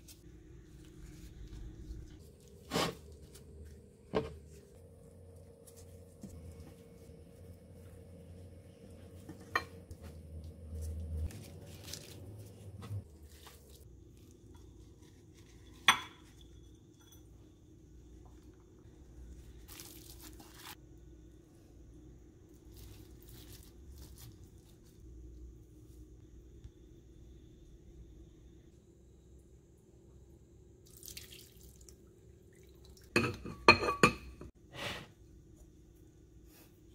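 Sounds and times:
dishware clink: 33.2s - 34.5s.

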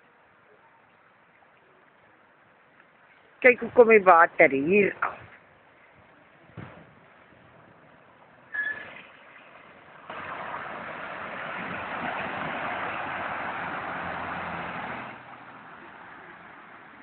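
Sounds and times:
water rushing: 8.9s - 17.0s.

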